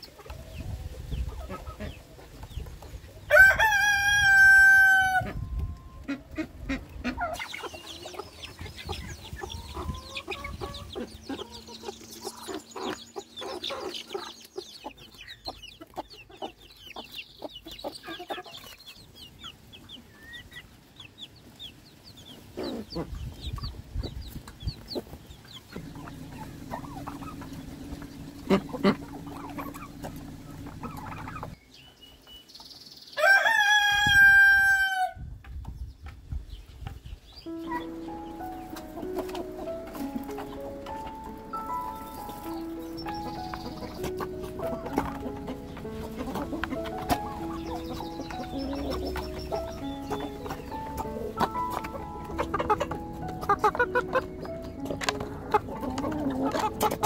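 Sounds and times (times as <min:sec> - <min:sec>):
hens clucking: 0:00.0 - 0:21.6, 0:22.2 - 0:31.6, 0:36.8 - 0:57.0
chicks peeping: 0:00.0 - 0:57.0
rooster crowing: 0:03.3 - 0:05.4, 0:33.2 - 0:35.2.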